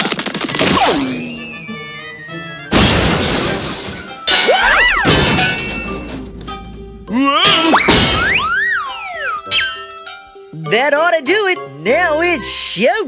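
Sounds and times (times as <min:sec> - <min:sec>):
cartoon crashes: 0:00.0 - 0:06.5, 0:07.1 - 0:09.9
background music: 0:00.0 - 0:13.0
cartoon falling tone: 0:00.6 - 0:03.6, 0:04.3 - 0:06.2, 0:07.1 - 0:09.9.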